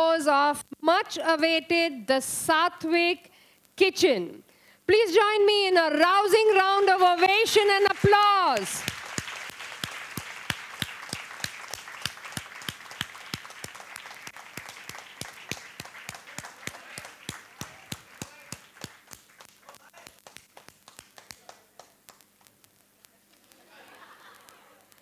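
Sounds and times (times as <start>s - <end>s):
audience applauding: 6.2s - 22.4s.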